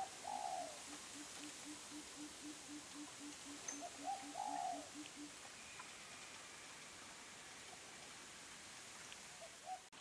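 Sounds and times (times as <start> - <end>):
distant bird calls: 0.0 - 6.6
steady hiss: 0.0 - 10.0.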